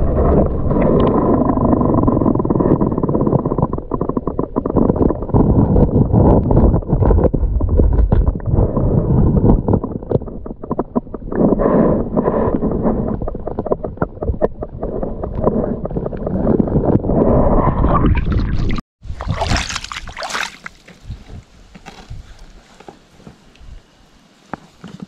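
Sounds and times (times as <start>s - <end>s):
muffled underwater stream: 0.0s - 21.5s
water splashing and trickling: 18.1s - 21.5s.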